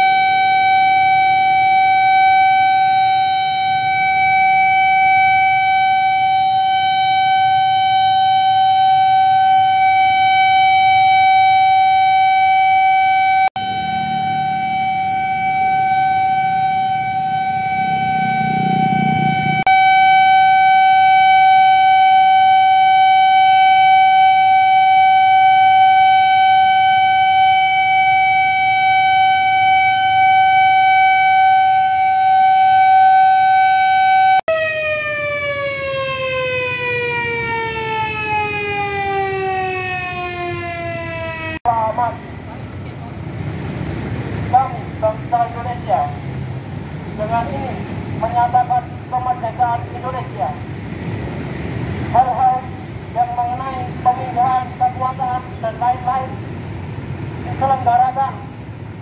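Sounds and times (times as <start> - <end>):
siren long steady note: 0.0 - 43.0, 44.4 - 59.0
motorbike traffic: 13.6 - 32.1, 34.6 - 59.0.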